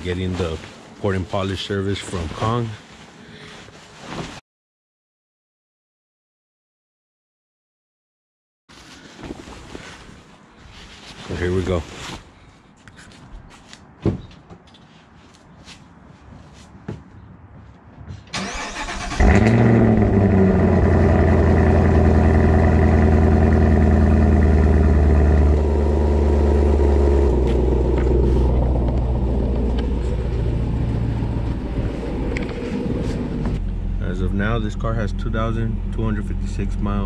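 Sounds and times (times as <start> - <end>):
car engine starting and idling: 18.3 - 37.0.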